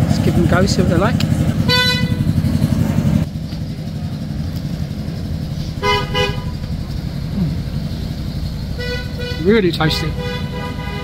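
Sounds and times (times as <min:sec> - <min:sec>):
close engine rumble: 0:00.0 - 0:11.0
traffic engine rumble: 0:00.0 - 0:11.0
car horn toots: 0:01.7 - 0:02.2, 0:05.8 - 0:06.6, 0:08.7 - 0:11.0.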